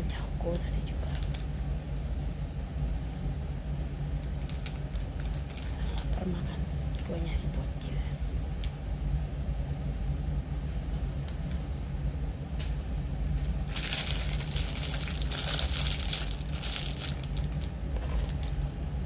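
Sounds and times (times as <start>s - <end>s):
steady low hum: 0.0s - 19.0s
rustling crinkling noise: 4.2s - 6.3s, 12.6s - 18.8s.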